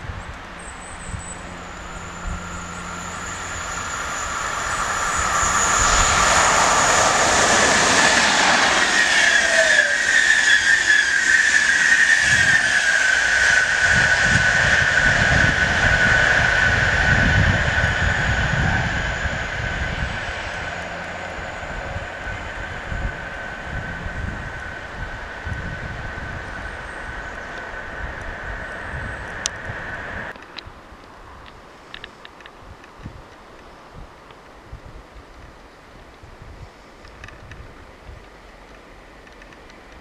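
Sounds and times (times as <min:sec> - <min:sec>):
high whine: 0:00.0 - 0:30.4
train passing at speed: 0:00.0 - 0:30.5.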